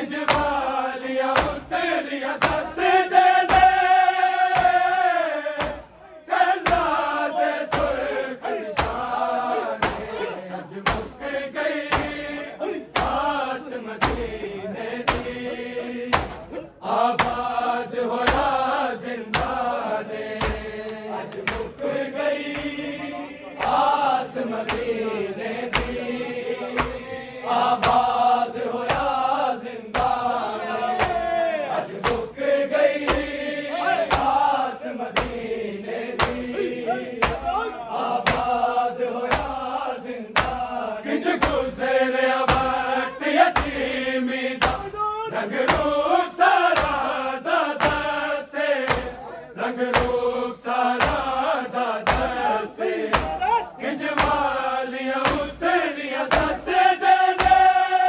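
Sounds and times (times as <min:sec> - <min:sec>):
group of voices chanting: 0:00.0 - 0:58.0
rhythmic chest-beating strikes: 0:00.0 - 0:58.0.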